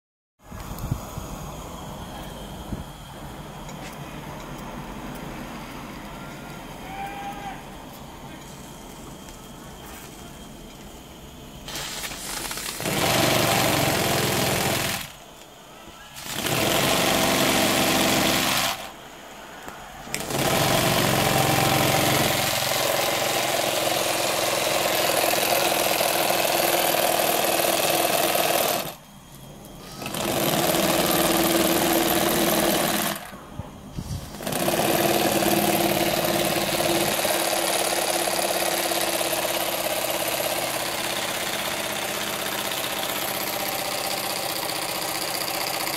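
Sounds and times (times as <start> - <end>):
steam hissing: 8.2 - 12.7, 33.8 - 34.5.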